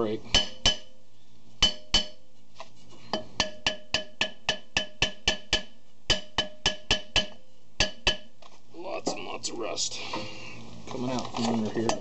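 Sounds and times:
hammer tapping metal drum: 0:00.3 - 0:01.0, 0:01.6 - 0:02.3, 0:03.0 - 0:08.5.

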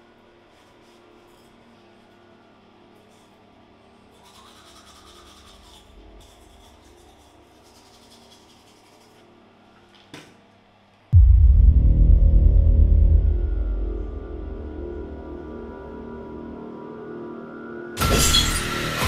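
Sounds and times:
toothbrush scrubbing teeth: 0:04.1 - 0:09.4.

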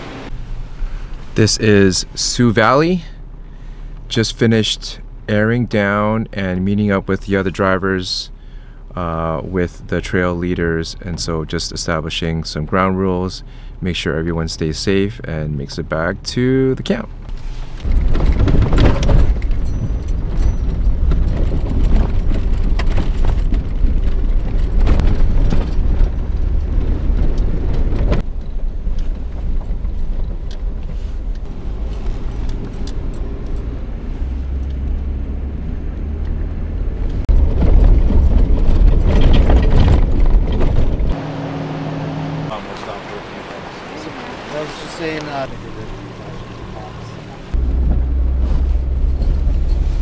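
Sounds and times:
engine and tyres rumbling: 0:00.0 - 0:50.0
knocks and rattles over bumps: 0:17.2 - 0:35.3, 0:37.0 - 0:41.2.

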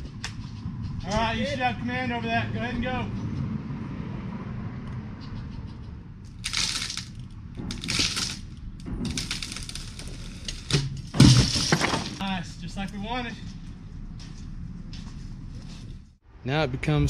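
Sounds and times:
wood cracking and splitting: 0:06.3 - 0:12.4
tree trunk hitting the ground: 0:06.5 - 0:12.3.

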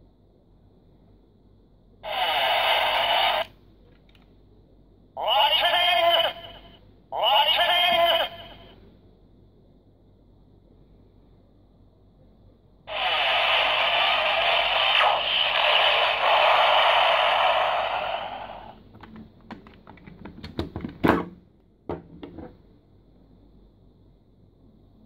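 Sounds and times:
tinny electronic toy sound effect: 0:02.0 - 0:03.5, 0:05.2 - 0:06.6, 0:12.9 - 0:18.8
plastic clicks and knocks: 0:19.0 - 0:21.3.

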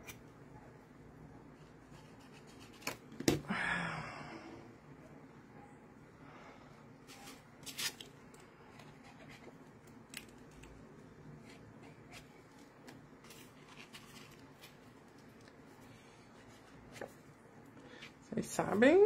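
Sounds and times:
paper rustling: 0:11.4 - 0:15.4.

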